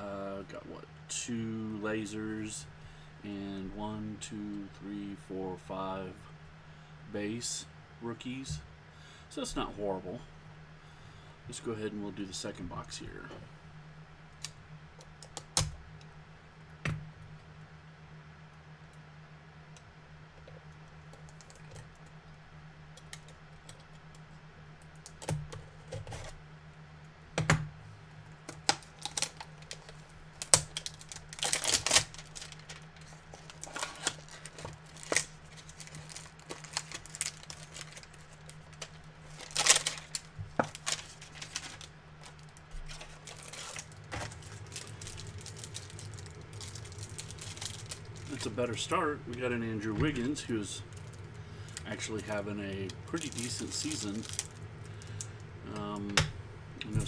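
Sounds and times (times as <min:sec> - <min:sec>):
crinkling and rustling: 0:23.0 - 0:26.4, 0:28.3 - 0:56.2.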